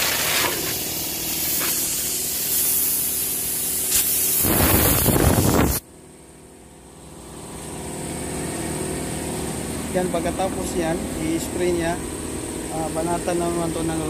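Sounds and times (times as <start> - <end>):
spray gun hissing: 0.0 - 5.8.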